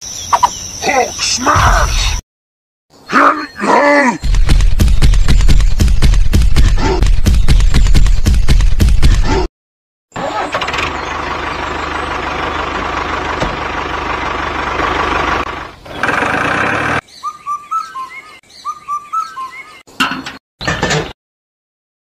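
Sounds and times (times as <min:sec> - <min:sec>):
small birds chirping: 0:00.0 - 0:02.2, 0:02.9 - 0:08.6, 0:10.8 - 0:13.0, 0:16.9 - 0:20.0
tractor engine running: 0:10.2 - 0:17.0.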